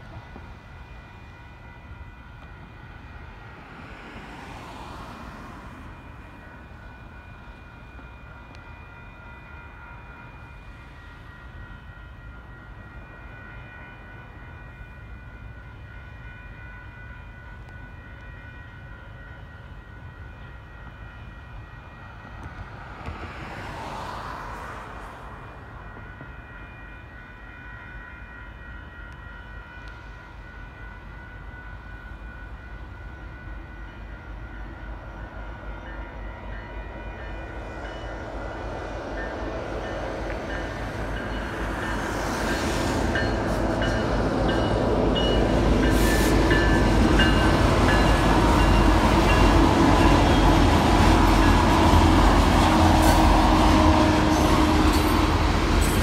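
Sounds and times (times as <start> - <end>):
railroad crossing bell ringing: 0.0 - 56.0
diesel locomotive rumble: 38.1 - 56.0.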